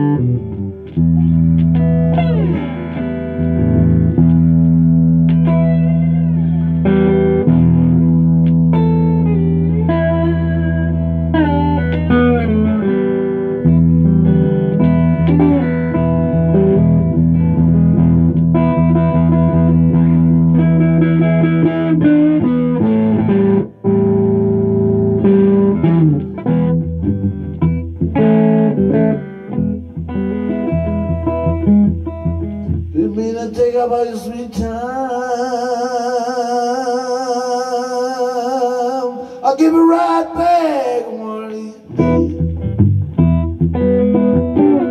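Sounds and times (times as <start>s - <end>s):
solo electric guitar: 0.0s - 44.9s.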